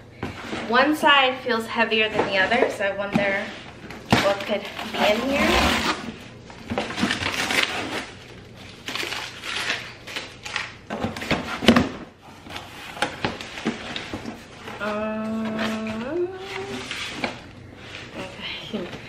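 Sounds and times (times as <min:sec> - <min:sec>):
cardboard scraping and rustling: 0:02.1 - 0:08.2.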